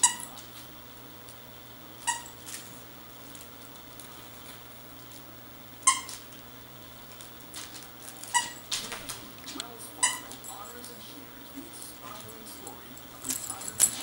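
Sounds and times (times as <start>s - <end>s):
dog squealing: 2.0s - 2.4s, 5.9s - 6.2s, 8.3s - 8.7s, 10.0s - 10.4s.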